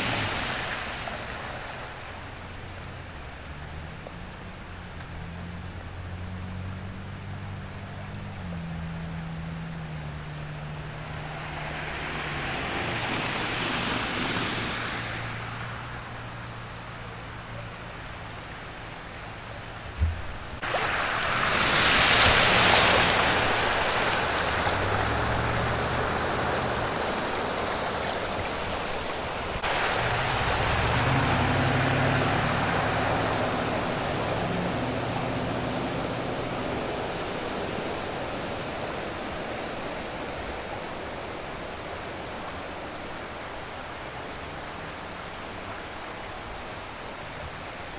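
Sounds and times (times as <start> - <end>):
engines humming: 0.0 - 47.9
brief thump: 20.0 - 20.6.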